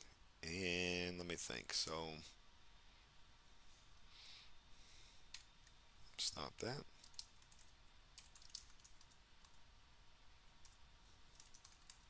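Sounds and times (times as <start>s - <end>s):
typing on computer keyboard: 7.0s - 9.6s, 10.6s - 12.0s.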